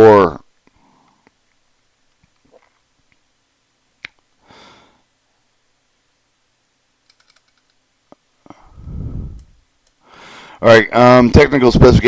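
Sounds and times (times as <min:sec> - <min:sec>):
computer mouse clicks: 0:07.0 - 0:07.8, 0:09.3 - 0:10.0
small ticks: 0:07.0 - 0:07.8
low rumbling puff: 0:08.6 - 0:09.6.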